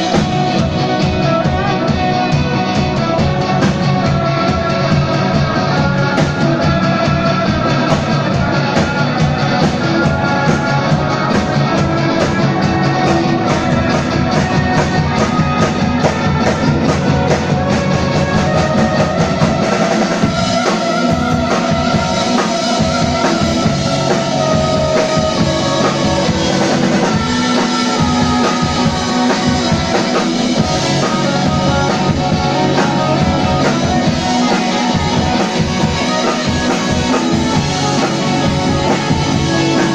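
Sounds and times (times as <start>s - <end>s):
live rock band playing: 0.0s - 39.9s
steady drum beat: 0.0s - 39.9s.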